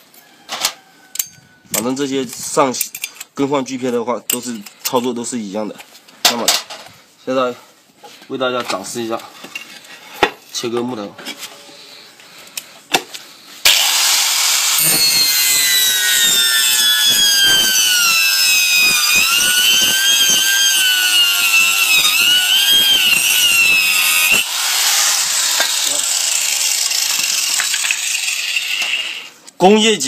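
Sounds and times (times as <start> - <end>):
angle grinder cutting wood: 13.6 - 29.4.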